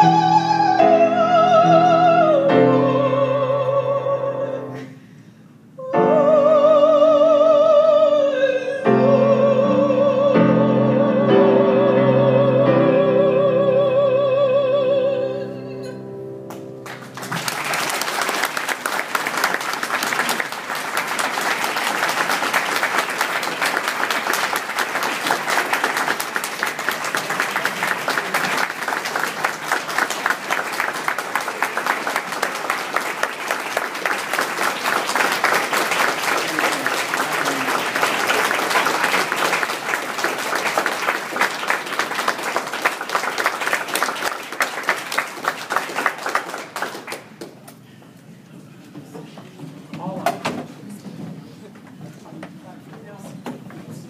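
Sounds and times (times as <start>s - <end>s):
audience applause: 16.8s - 47.7s.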